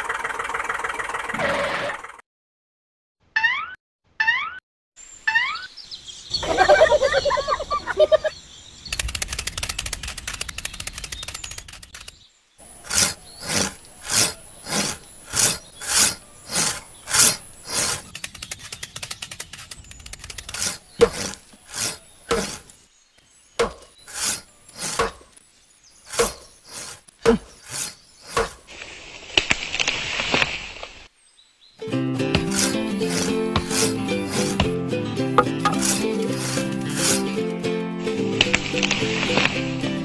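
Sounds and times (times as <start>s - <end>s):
saw cutting wood: 12.6s - 22.8s, 23.6s - 25.3s, 26.1s - 28.7s, 32.2s - 39.9s
axe chopping wood: 20.4s - 22.7s, 23.6s - 25.3s, 26.1s - 28.7s, 32.3s - 37.2s.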